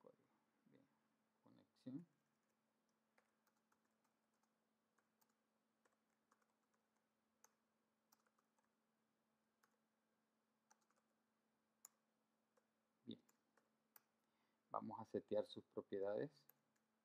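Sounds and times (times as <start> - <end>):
computer keyboard keystrokes: 3.2 - 8.7, 10.7 - 11.0.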